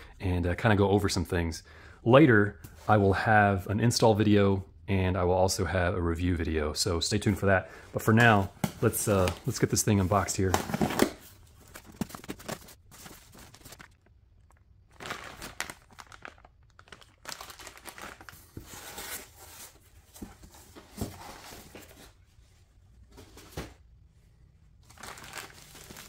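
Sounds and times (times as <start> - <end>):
plastic bags crinkling: 9.0 - 18.6, 24.8 - 26.0
cardboard box flaps rustling: 10.5 - 13.9.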